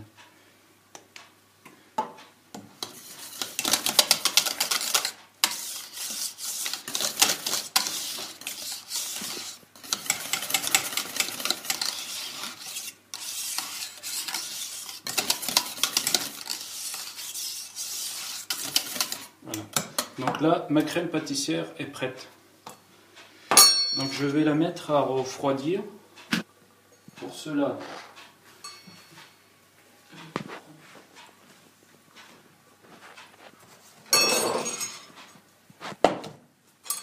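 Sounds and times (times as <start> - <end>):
whisk scraping a metal saucepan: 2.8 - 19.4.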